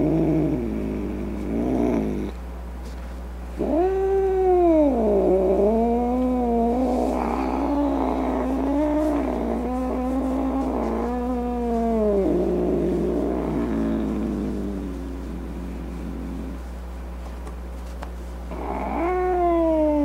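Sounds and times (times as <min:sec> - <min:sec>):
cat yowling: 0:18.5 - 0:20.0.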